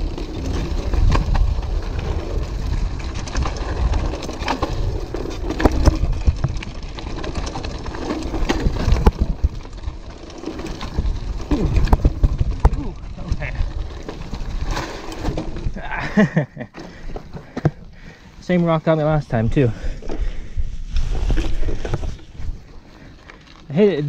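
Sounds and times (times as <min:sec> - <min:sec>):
bike knocking and rattling: 0:00.0 - 0:18.2
tyres rumbling on rocky trail: 0:00.0 - 0:24.0
wind on microphone: 0:10.8 - 0:14.8.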